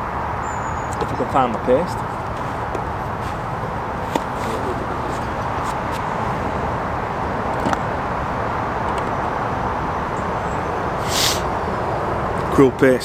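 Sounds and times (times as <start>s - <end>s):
outdoor rumble and hiss: 0.0s - 13.0s
short rustle: 2.1s - 6.1s.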